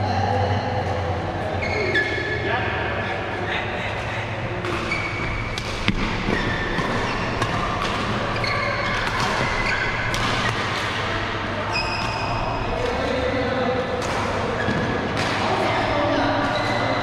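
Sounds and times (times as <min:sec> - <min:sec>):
shoes squeaking on court: 0:01.6 - 0:02.3, 0:04.5 - 0:10.8, 0:11.7 - 0:12.4, 0:14.5 - 0:15.1
racket hitting shuttlecock: 0:04.6 - 0:11.3, 0:14.0 - 0:15.7.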